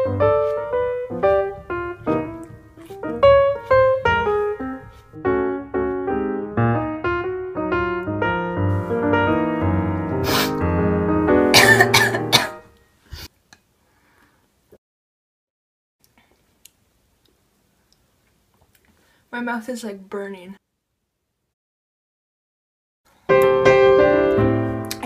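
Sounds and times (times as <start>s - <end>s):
piano music: 0.0s - 12.8s, 23.3s - 25.0s
person coughing: 11.6s - 12.6s.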